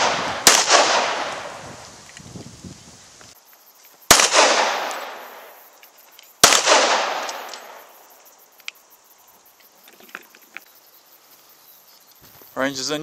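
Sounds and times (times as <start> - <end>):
pistol shots with echo: 0.0 - 1.6, 4.1 - 5.4, 6.4 - 7.8.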